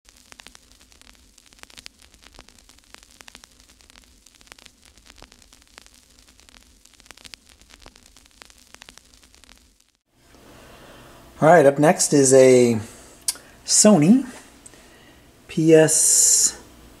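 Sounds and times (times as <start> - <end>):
crackles and pops: 0.0 - 10.1
steady hiss: 0.1 - 17.0.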